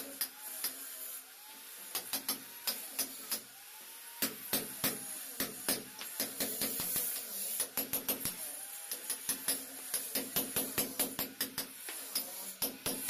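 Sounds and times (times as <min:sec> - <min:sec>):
hammer striking steel chisel: 0:04.2 - 0:13.0.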